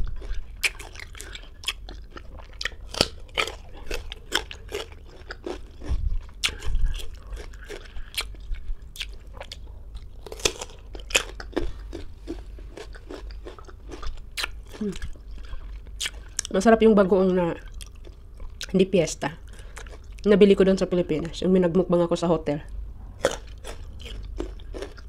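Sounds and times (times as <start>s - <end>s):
crunching and chewing fruit: 0.0s - 20.4s, 23.2s - 25.0s.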